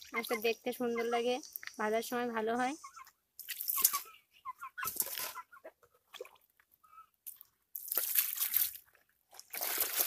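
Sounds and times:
water splashing over fish pieces: 7.8s - 10.0s.

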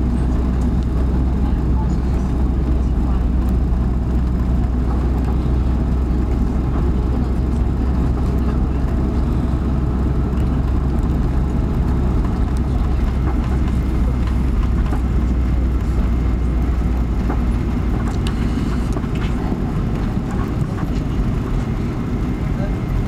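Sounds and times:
low rumble of engines and wheels: 0.0s - 23.0s
faint clicks and rattles: 10.3s - 21.9s.

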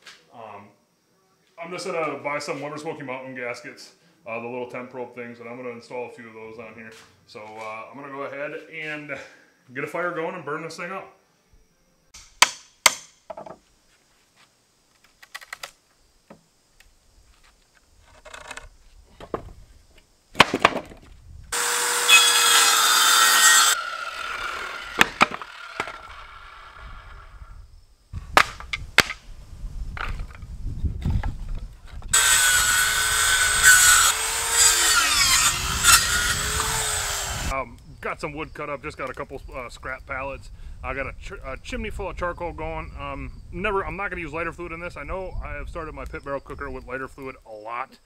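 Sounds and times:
wood knocking: 12.4s - 13.6s
circular saw cutting wood: 21.5s - 27.3s, 32.1s - 37.6s.

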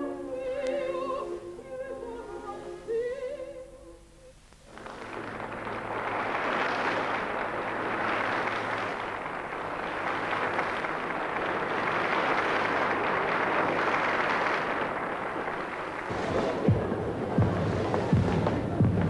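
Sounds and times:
audience applauding: 4.6s - 19.0s.

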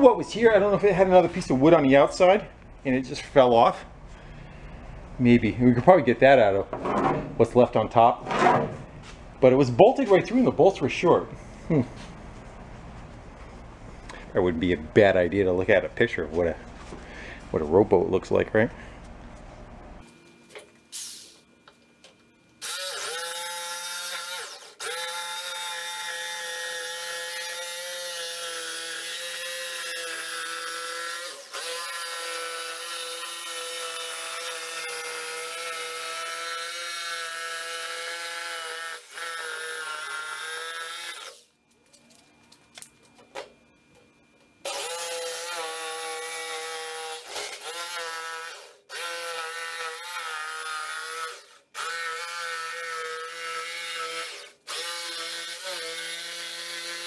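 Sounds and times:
jigsaw cutting plywood: 22.6s - 41.4s, 44.6s - 57.0s.

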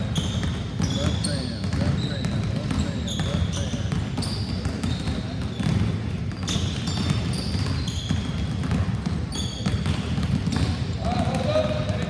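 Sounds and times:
basketballs bouncing on wooden floor: 0.0s - 12.0s
sneakers squeaking on floor: 0.0s - 12.0s.

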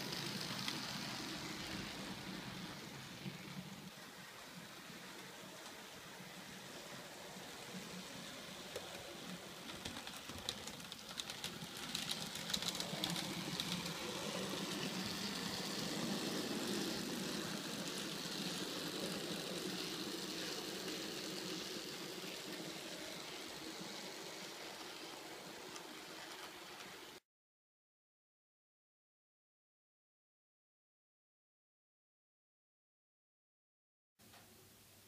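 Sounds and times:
wheels clicking over track: 0.0s - 3.8s, 7.9s - 27.2s
model train motor hum: 0.0s - 27.2s.

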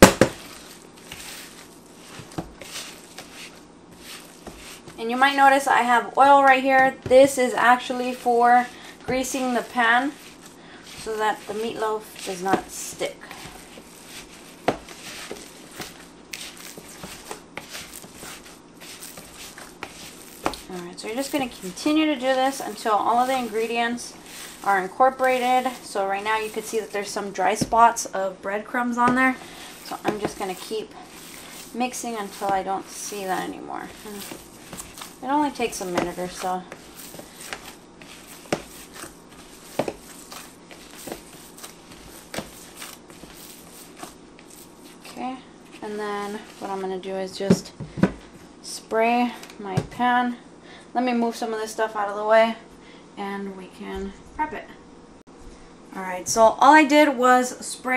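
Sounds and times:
meat mixture squelching: 0.0s - 5.0s, 8.8s - 27.7s, 29.1s - 45.2s.

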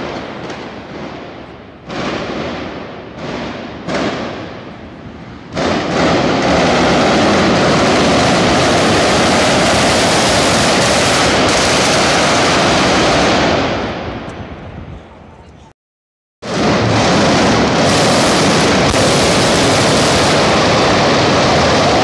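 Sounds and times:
machine guns firing rapidly: 5.6s - 13.6s, 16.5s - 22.0s.

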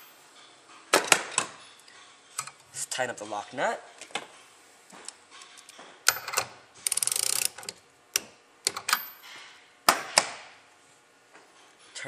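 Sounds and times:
ratchet wrench clicking: 6.1s - 7.8s.

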